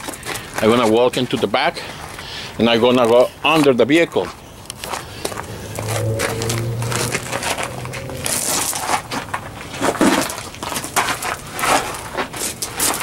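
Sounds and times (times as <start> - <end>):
low steady hum: 4.4 - 9.4.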